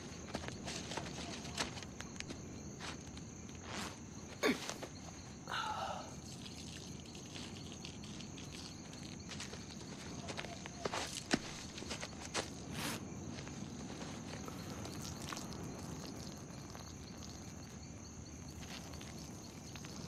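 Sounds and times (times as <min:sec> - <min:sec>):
footsteps in brush: 0:00.0 - 0:05.1, 0:08.5 - 0:14.5
crickets chirring: 0:00.0 - 0:20.0
falling vocal sigh: 0:05.5 - 0:06.2.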